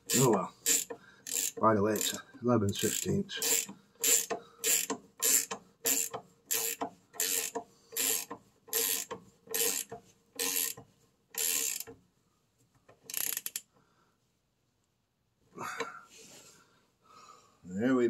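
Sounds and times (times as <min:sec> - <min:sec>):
ratchet wrench clicking: 0:00.0 - 0:02.2, 0:02.8 - 0:12.0, 0:13.0 - 0:13.7.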